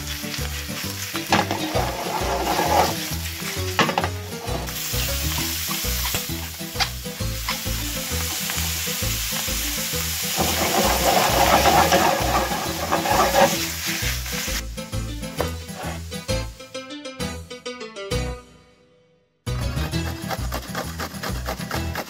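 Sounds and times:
mushrooms sizzling in a pan: 0.0 - 16.3
wooden spatula scraping a pan: 0.7 - 6.3, 10.2 - 14.5, 15.7 - 16.1, 20.0 - 22.0
background music with low beat: 3.1 - 10.3, 14.3 - 18.5.

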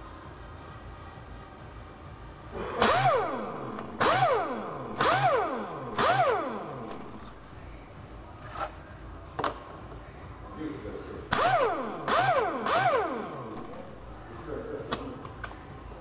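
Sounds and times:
pneumatic impact wrench whining: 2.8 - 7.4, 11.3 - 14.0.

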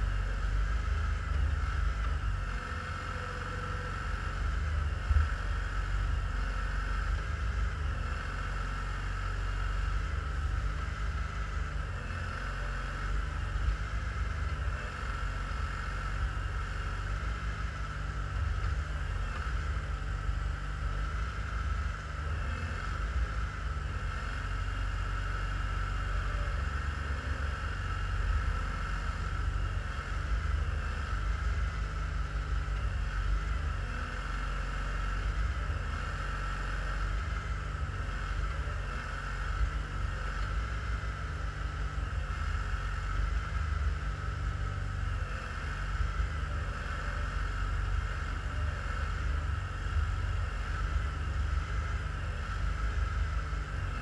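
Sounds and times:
tractor engine rumbling: 0.0 - 54.0.

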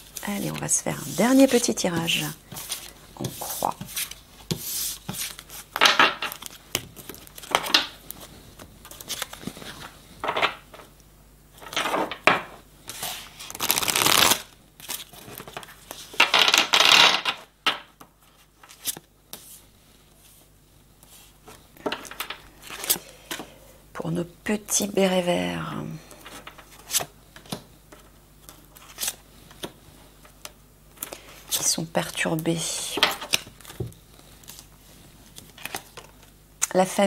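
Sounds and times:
cards being shuffled: 0.0 - 10.9, 12.9 - 17.4.

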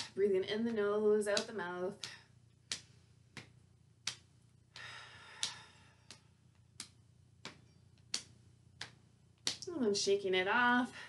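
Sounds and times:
hands patting knees: 1.4 - 9.7
soft breath out: 4.7 - 6.1.

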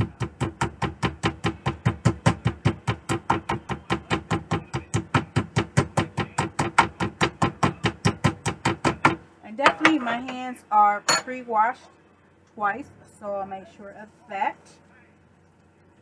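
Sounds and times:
meat mallet pounding steak: 0.0 - 9.2.

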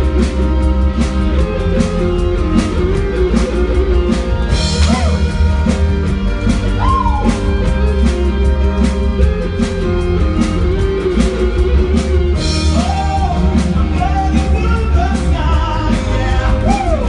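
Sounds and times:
loud rock and roll music: 0.0 - 17.0
person singing: 12.5 - 17.0.

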